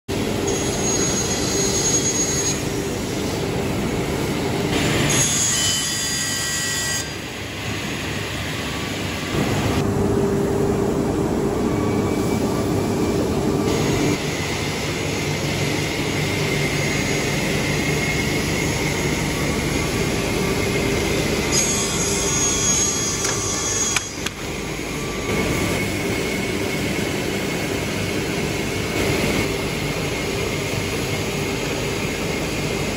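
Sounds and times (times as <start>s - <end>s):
panel saw cutting boards: 21.4s - 25.3s.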